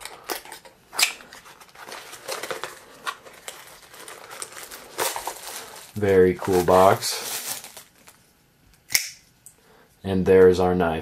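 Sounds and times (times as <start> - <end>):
cardboard scraping and crinkling: 1.3 - 8.2.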